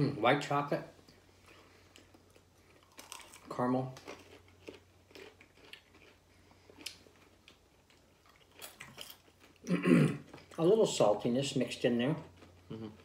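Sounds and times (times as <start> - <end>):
chewing crunchy snack: 1.4 - 10.7, 12.2 - 13.0.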